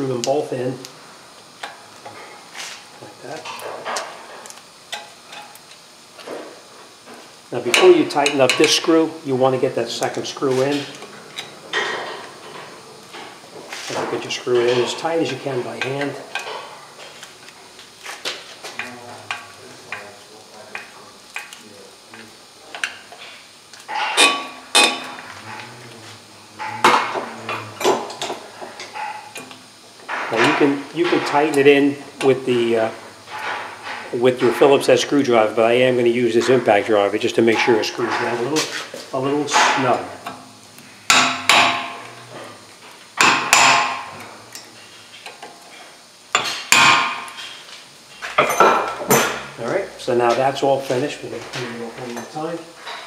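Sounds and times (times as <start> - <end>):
metal hand tools clanking: 23.9 - 25.2
hammer striking metal driver: 41.1 - 42.1.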